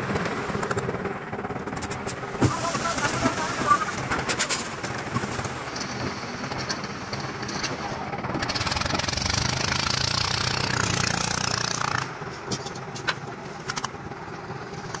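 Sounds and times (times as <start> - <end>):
concrete mixer engine running: 0.0 - 15.0.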